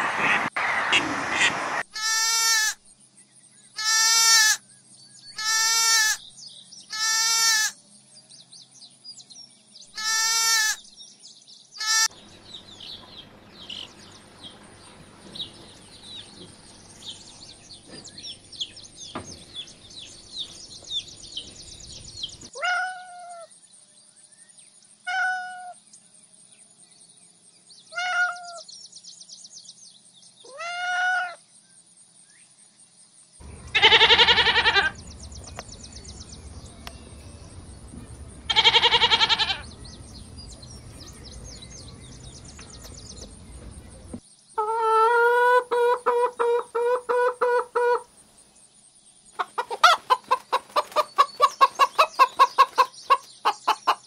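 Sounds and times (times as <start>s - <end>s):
lamb bleating: 2.0s - 2.8s, 3.8s - 4.6s, 5.4s - 6.2s, 6.9s - 7.7s, 10.0s - 10.8s, 11.8s - 12.1s, 33.7s - 35.0s, 38.5s - 39.7s
chicks peeping: 12.3s - 22.5s, 49.4s - 54.0s
cat meowing: 33.8s - 35.0s, 38.5s - 39.6s.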